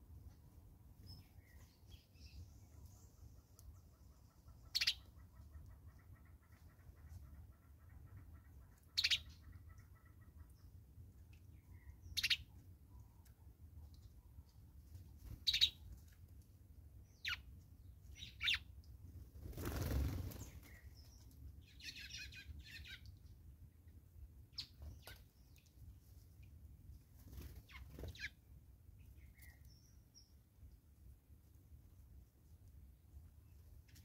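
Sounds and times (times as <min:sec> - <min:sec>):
birds chirping: 0:01.0 - 0:10.6.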